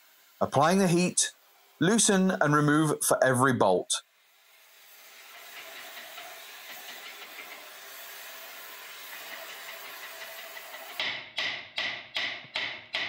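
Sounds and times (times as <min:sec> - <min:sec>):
gas torch flame hissing: 0:00.0 - 0:02.9, 0:04.1 - 0:11.0.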